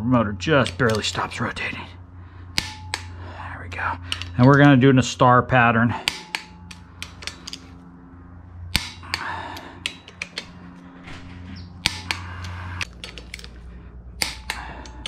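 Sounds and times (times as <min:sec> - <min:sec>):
light clicks of wrench and socket: 0:06.1 - 0:07.7, 0:08.8 - 0:10.5, 0:11.8 - 0:13.6.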